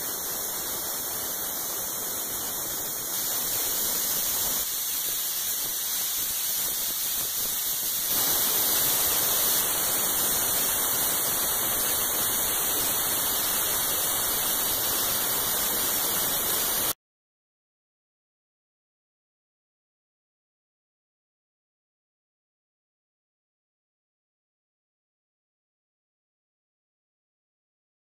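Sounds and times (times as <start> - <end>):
blasting nozzle hissing: 0.0 - 17.0.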